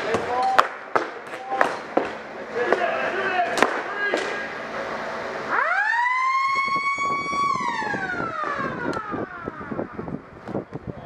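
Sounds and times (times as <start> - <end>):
siren winding up and down: 5.4 - 10.3.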